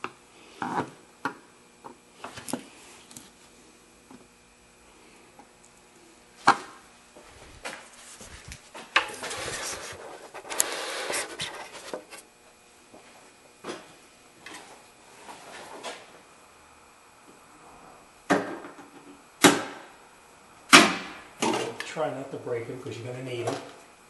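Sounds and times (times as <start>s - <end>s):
plastic rubbing and scraping: 7.4s - 12.2s.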